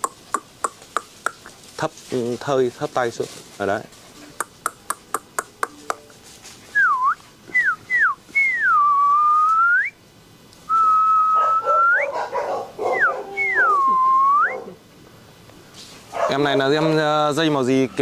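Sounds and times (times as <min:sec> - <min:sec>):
person whistling: 0:06.7 - 0:10.0, 0:10.7 - 0:12.1, 0:13.0 - 0:14.6.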